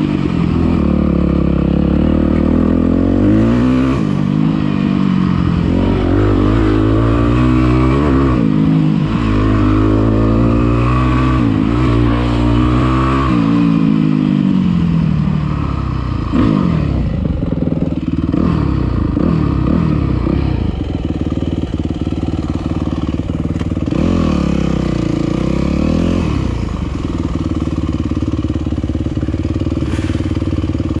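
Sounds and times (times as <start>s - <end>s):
dirt bike engine revving: 0.0s - 31.0s.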